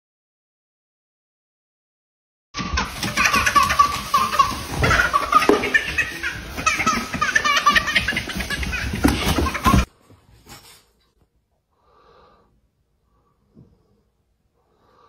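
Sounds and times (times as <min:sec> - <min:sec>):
baby laughing: 0:02.6 - 0:09.9.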